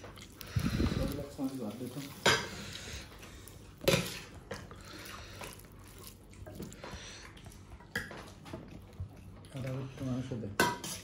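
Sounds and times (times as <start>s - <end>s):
liquid being handled: 0.0s - 9.7s
dishes and utensils clinking: 10.4s - 11.0s.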